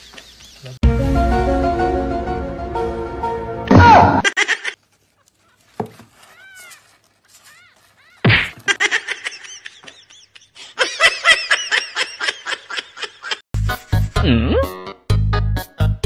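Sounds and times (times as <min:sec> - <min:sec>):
person laughing: 0:04.2 - 0:04.8, 0:08.2 - 0:13.4, 0:14.2 - 0:14.7.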